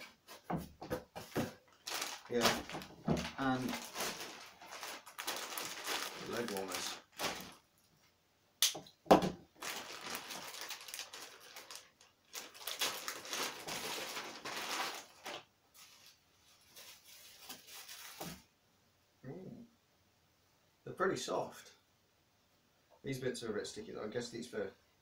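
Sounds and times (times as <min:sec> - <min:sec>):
plastic bag crinkling: 0:01.3 - 0:07.7, 0:09.6 - 0:18.5
sharp plastic snaps: 0:08.6 - 0:09.0.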